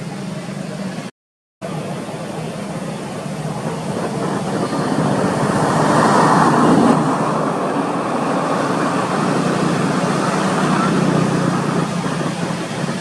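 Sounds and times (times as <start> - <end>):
road traffic rush: 0.0 - 13.0
vehicle passing: 2.4 - 13.0.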